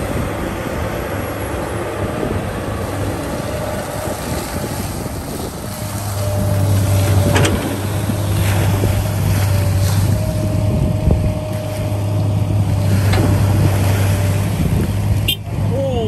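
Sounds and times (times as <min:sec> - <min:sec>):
motor humming: 0:00.0 - 0:15.7
wind noise: 0:00.0 - 0:16.0.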